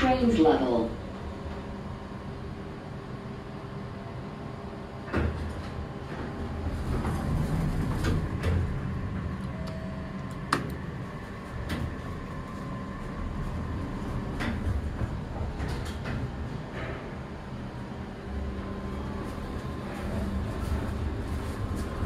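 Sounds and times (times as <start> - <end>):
elevator doors sliding: 0.0 - 22.0
low machine hum: 0.0 - 22.0
elevator door clunk: 5.0 - 17.4.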